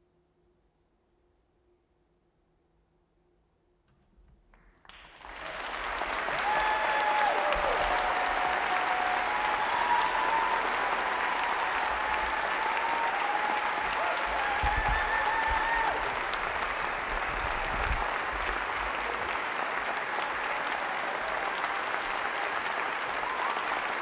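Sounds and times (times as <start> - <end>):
audience applause: 4.8 - 24.0
audience cheering: 4.9 - 24.0.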